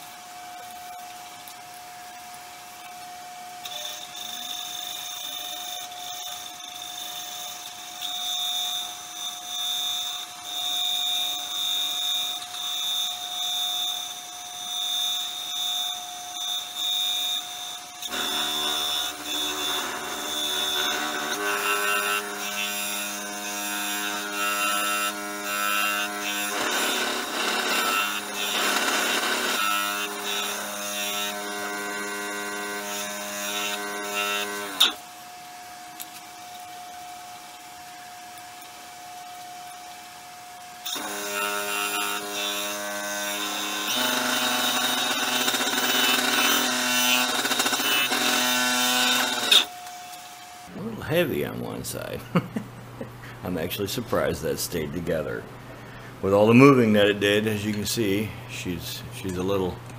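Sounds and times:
wood lathe motor whine: 3.6 - 38.0, 39.0 - 50.7.

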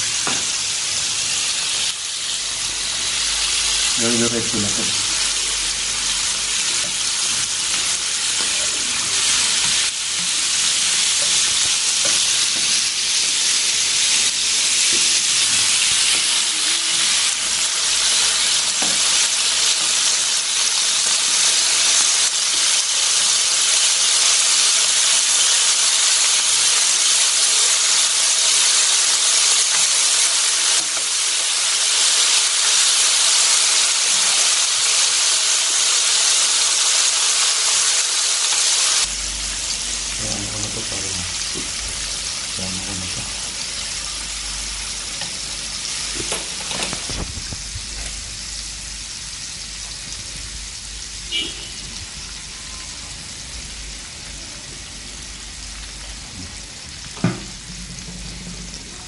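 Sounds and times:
meat sizzling on grill pan: 0.0 - 59.0.

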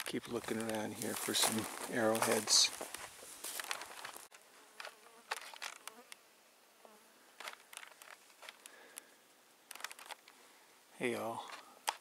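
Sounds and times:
footsteps on gravel and twigs: 0.0 - 6.0, 7.4 - 9.0
insect buzzing: 4.4 - 8.1.

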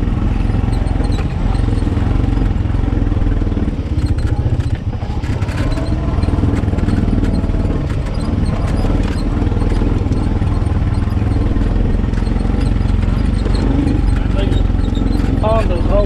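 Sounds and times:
engine running steadily: 0.0 - 16.0
light rattles and clicks: 0.3 - 16.0.

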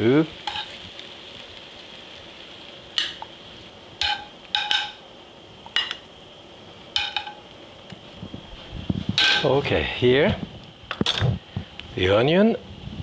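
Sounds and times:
oil sizzling: 0.0 - 13.0
metal tongs clinking: 4.0 - 5.0, 5.7 - 6.0.

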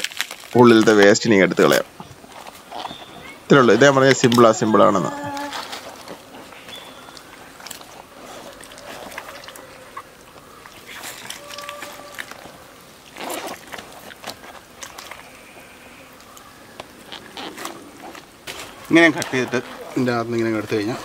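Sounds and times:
rustles: 0.0 - 21.0
wet handling of duck carcass: 0.0 - 21.0.

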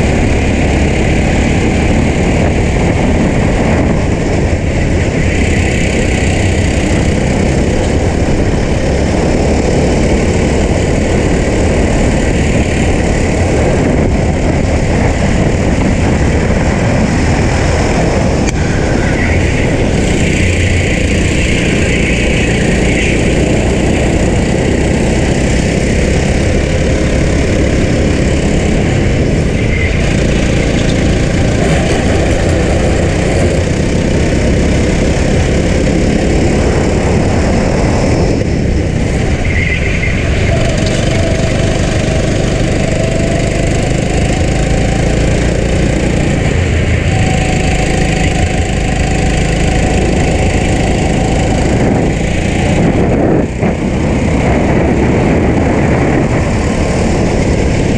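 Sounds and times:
go-kart engine running hard: 0.0 - 57.9.

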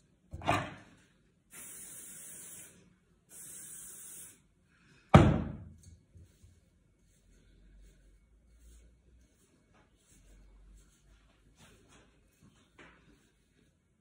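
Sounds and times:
aerosol can spraying: 1.5 - 4.4.

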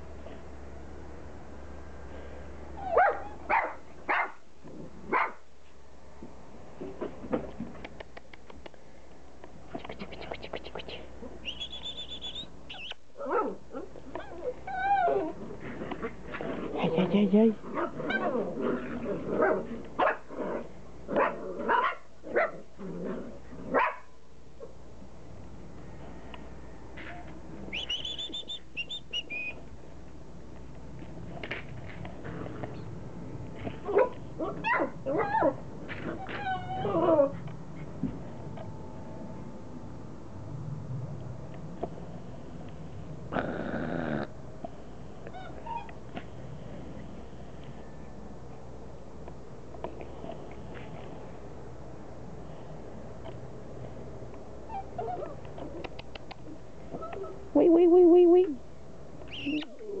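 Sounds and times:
puppies whining and yelping: 2.8 - 3.5, 11.4 - 15.5, 17.8 - 19.5, 27.2 - 29.6, 33.8 - 37.4, 45.3 - 46.0, 54.7 - 55.8, 59.3 - 60.0.

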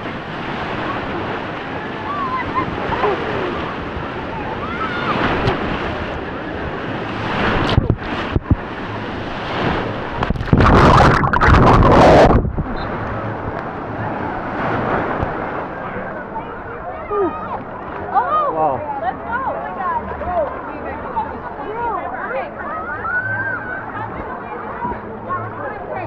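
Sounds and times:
loud rush of water: 0.0 - 17.4
waves sloshing in pool: 0.0 - 21.9
faint voices of swimmers: 0.0 - 26.0.

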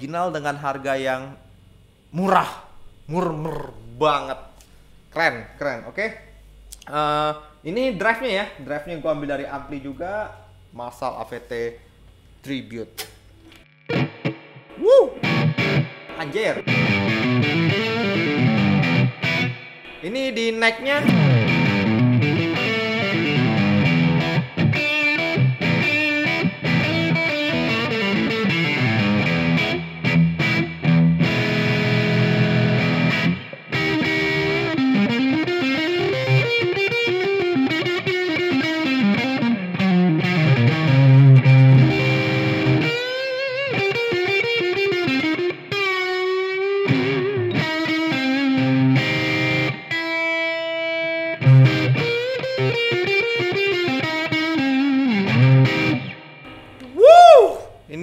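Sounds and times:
distorted electric guitar: 13.0 - 57.0.

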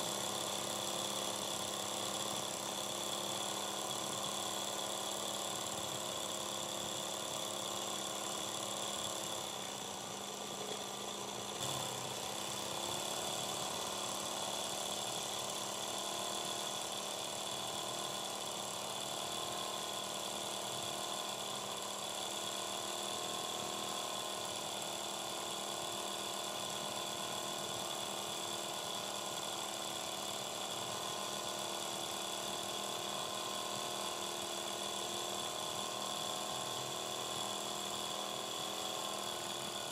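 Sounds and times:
sewing machine stitching: 0.0 - 25.0.

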